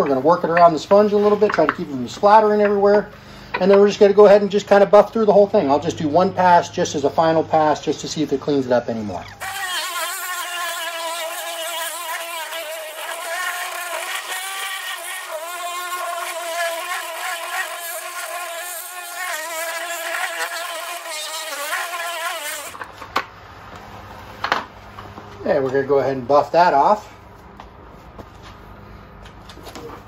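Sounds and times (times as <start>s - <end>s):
electric polisher motor whine: 12.5s - 19.2s.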